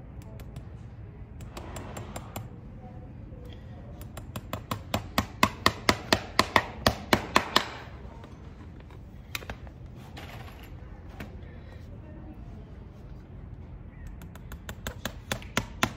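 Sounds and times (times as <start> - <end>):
hammer striking horseshoe nail: 4.0 - 7.8.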